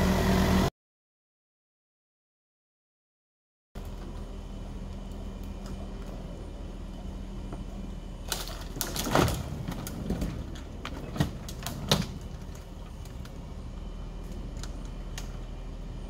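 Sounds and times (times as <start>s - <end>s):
low steady machine hum: 3.8s - 16.0s
sharp cracks and knocks: 8.3s - 13.4s.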